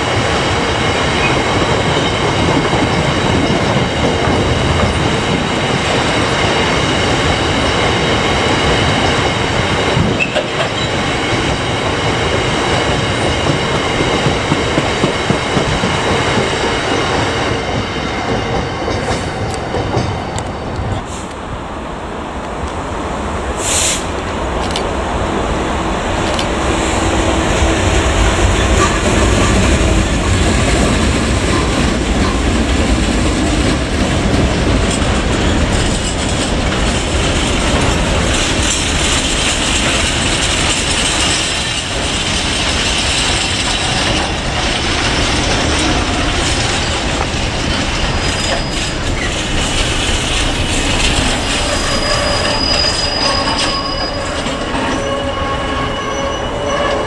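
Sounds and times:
locomotive rumble: 0.0 - 57.0
wagon wheels clattering on track: 28.7 - 52.8
wheel squeal: 48.1 - 49.8, 50.9 - 57.0.

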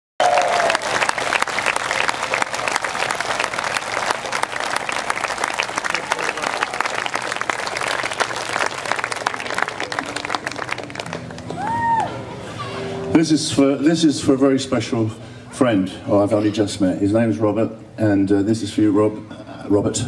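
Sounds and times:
audience applauding: 0.2 - 12.4.

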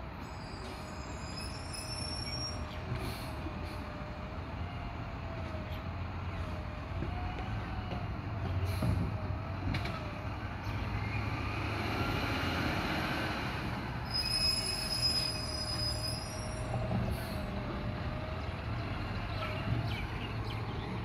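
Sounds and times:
high-pitched squeal: 0.2 - 2.8, 14.0 - 17.4.

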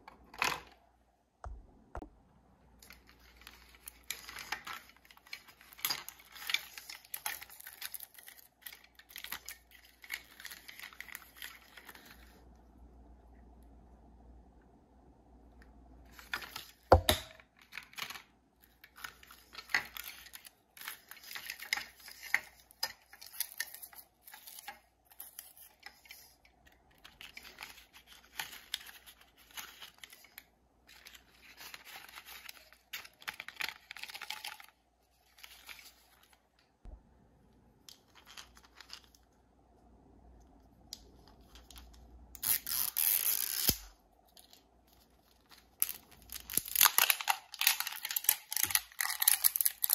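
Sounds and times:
paper packaging rustling and tearing: 2.8 - 12.5, 17.6 - 36.5, 38.0 - 39.4, 44.4 - 49.9.

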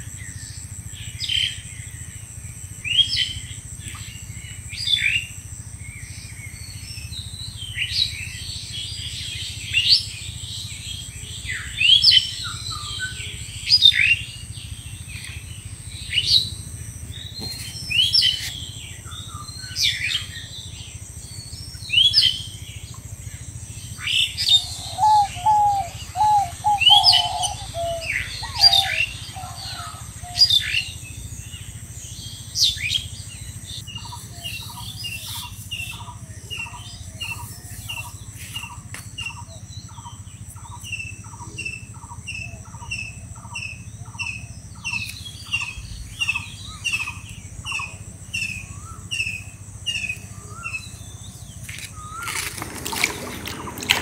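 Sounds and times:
bird chirping: 2.9 - 54.0
lower quick run of bird notes: 51.9 - 54.0.

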